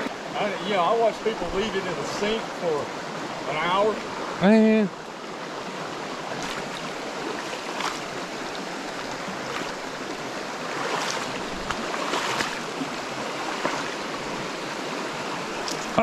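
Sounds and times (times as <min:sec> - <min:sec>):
stream rushing over rocks: 0:00.0 - 0:16.0
faint ticks and splashes: 0:05.0 - 0:16.0.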